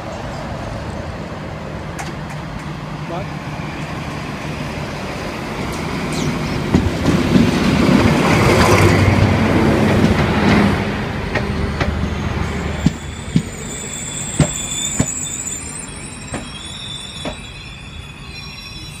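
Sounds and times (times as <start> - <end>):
diesel locomotive engine: 0.0 - 19.0
train wheels clacking over rail joints: 5.6 - 12.0.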